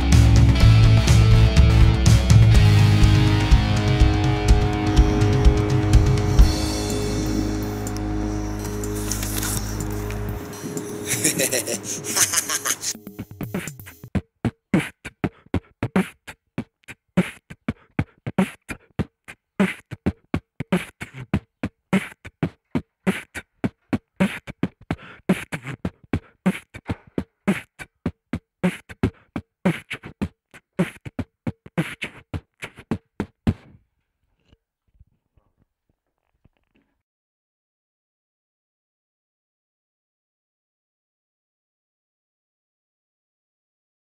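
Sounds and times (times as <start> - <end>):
dry percussive beat music: 0.0 - 14.2.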